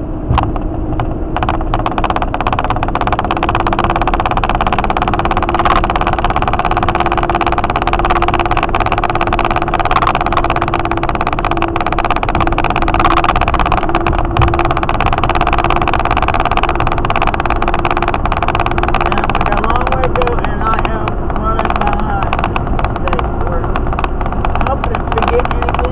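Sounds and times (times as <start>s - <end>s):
car interior road noise: 0.0s - 25.9s
steady low hum: 0.0s - 25.9s.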